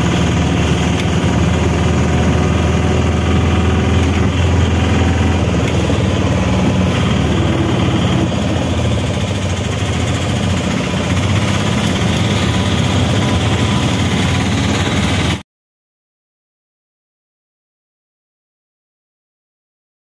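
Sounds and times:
traffic noise: 0:00.0 - 0:15.4
vehicle engine drone: 0:00.0 - 0:15.4.

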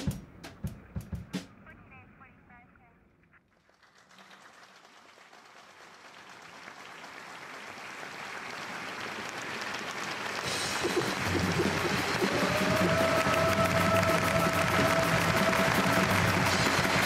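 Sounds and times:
audience applause: 0:03.6 - 0:17.0.

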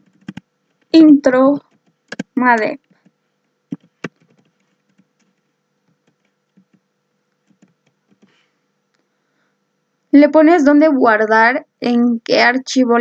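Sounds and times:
keyboard keystrokes: 0:00.0 - 0:00.9, 0:01.7 - 0:03.1, 0:03.7 - 0:06.8.

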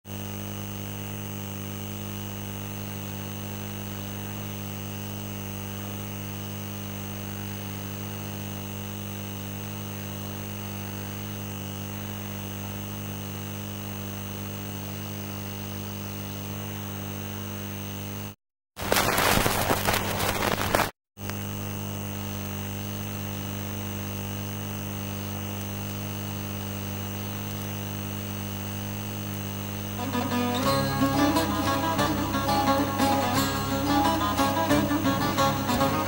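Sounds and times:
electrical mains hum: 0:00.1 - 0:36.0.

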